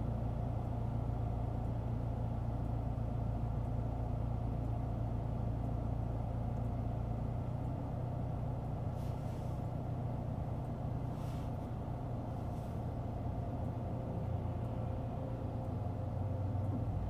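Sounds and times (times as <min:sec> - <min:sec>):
low hum tones: 0:00.0 - 0:17.0
vehicle engine rumbling: 0:00.0 - 0:17.0
faint passing road traffic: 0:08.9 - 0:09.8, 0:11.0 - 0:17.0.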